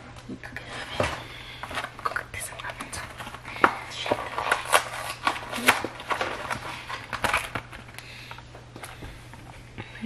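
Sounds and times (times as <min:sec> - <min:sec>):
cardboard snapping: 0:03.6 - 0:08.0.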